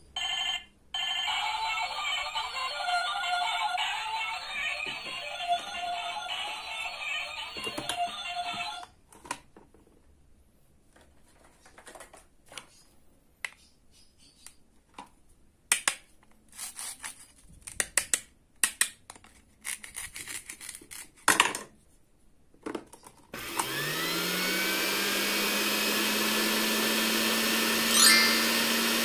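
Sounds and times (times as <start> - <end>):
toy mixer motor whirring: 1.1 - 8.8, 23.4 - 29.0
toy knife cutting toy fruit: 15.7 - 21.3.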